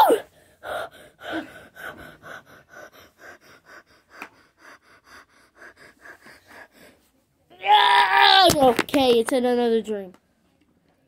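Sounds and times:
person panting: 0.2s - 7.2s.

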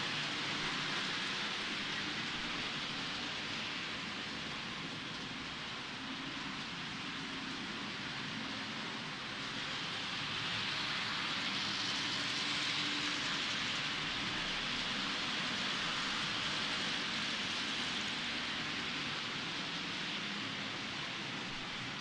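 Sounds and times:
model locomotive motor: 0.0s - 4.1s
model train wheels rolling on rails: 0.0s - 22.0s.

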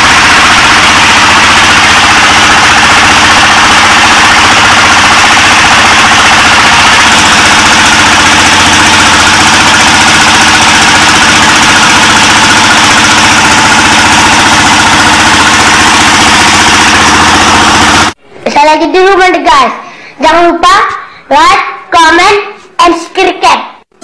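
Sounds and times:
diesel engine knocking: 0.0s - 18.2s.

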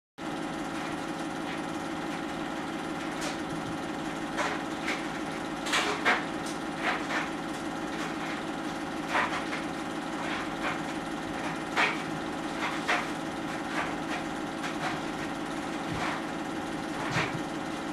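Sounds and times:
film projector whirring: 0.2s - 17.9s.

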